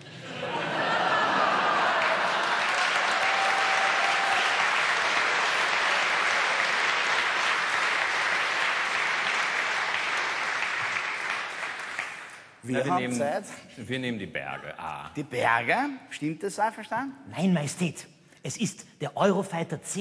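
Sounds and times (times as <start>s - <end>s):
audience applauding: 0.8s - 12.8s.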